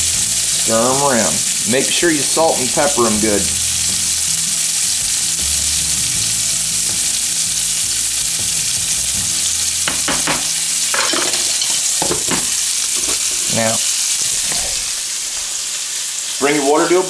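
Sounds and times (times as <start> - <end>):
meat sizzling in grease: 0.0 - 17.0
spoon knocking on pot: 9.8 - 13.5.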